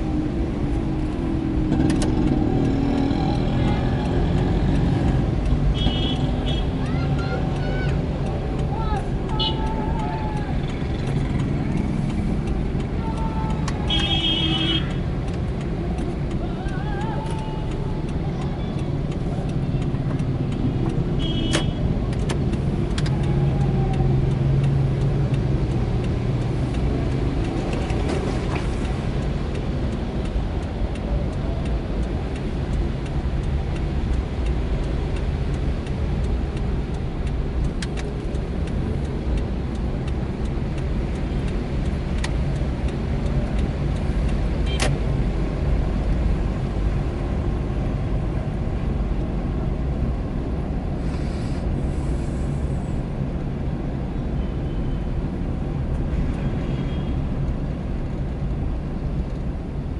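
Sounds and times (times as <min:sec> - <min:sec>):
car engine and road rumble: 0:00.0 - 0:59.9
sharp clicks: 0:00.2 - 0:50.7
tyre hiss on wet road: 0:51.0 - 0:53.0.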